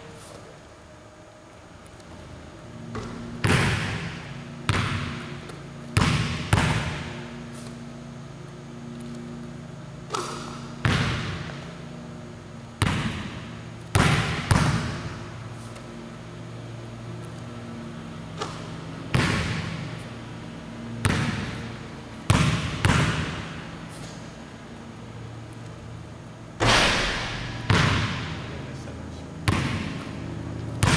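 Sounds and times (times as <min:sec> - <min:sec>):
basketball bouncing on wooden floor: 0:02.9 - 0:07.3, 0:10.1 - 0:11.8, 0:12.8 - 0:15.2, 0:18.4 - 0:19.9, 0:21.0 - 0:23.6, 0:26.6 - 0:28.4, 0:29.4 - 0:30.9.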